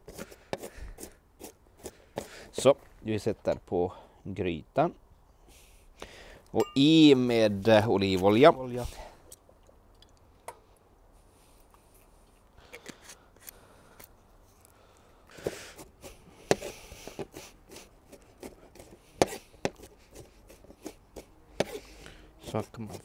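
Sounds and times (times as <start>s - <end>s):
knife chopping on cutting board: 18.4s - 19.9s.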